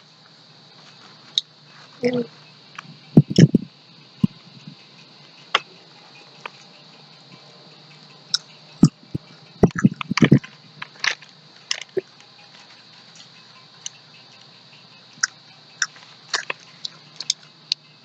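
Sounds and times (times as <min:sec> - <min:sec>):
chips crunching: 0:15.8 - 0:17.4.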